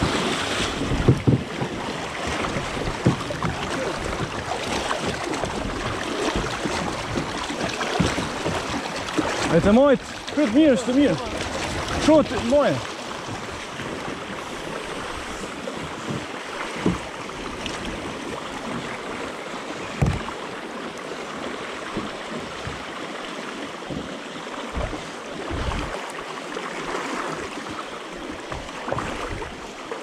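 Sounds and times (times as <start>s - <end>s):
river rushing over gravel: 0.0s - 17.2s
low thumps: 0.7s - 1.8s, 20.0s - 20.4s, 24.7s - 26.0s.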